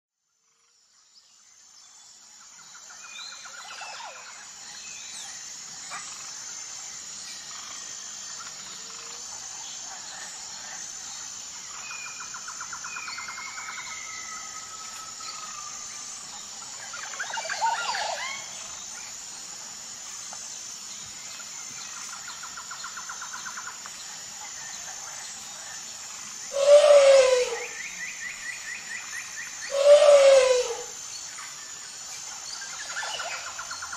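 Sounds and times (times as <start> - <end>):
insect drone: 0.2 - 33.9
birds chirping and whistling: 26.5 - 27.8, 29.6 - 30.9
pitched animal call: 26.5 - 27.8, 29.7 - 31.0.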